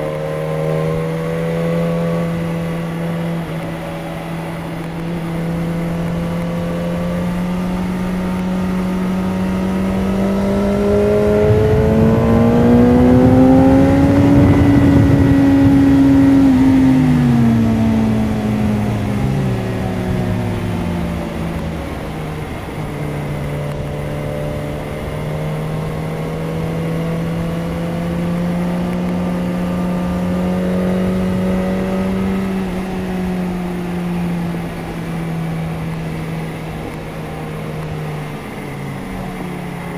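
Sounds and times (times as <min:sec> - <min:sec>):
motorcycle engine revving: 0:00.0 - 0:39.9
wind on microphone: 0:09.9 - 0:23.0.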